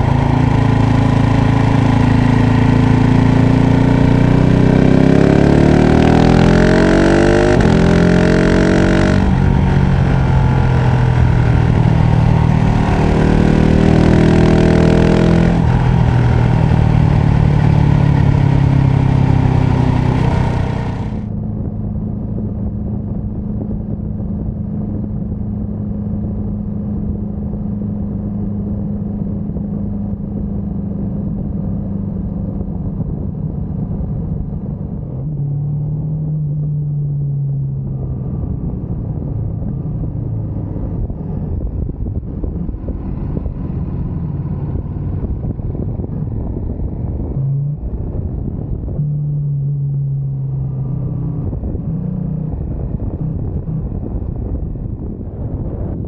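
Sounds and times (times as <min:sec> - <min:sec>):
motorcycle engine running: 0:00.0 - 0:24.5
wind and road noise: 0:00.0 - 0:56.0.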